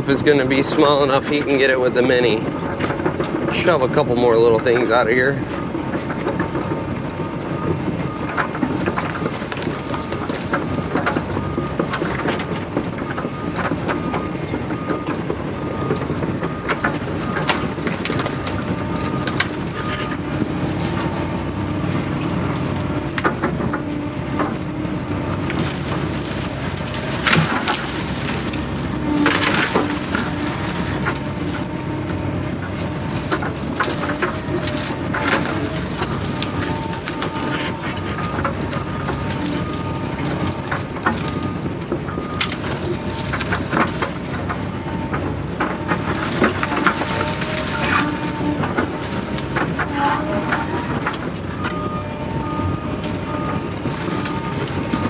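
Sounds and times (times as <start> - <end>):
diesel excavator engine running: 0.0 - 55.0
bucket cracking and knocking: 8.3 - 41.3, 45.6 - 51.8.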